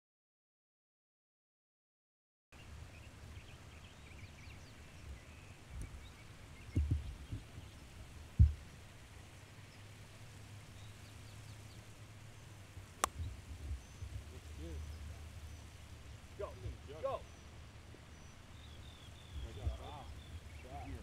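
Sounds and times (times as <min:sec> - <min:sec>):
faint bird chirps: 0:02.6 - 0:10.0, 0:10.7 - 0:21.0
wind rumble on microphone: 0:02.7 - 0:21.0
low thump: 0:06.7 - 0:07.8, 0:08.4 - 0:08.6.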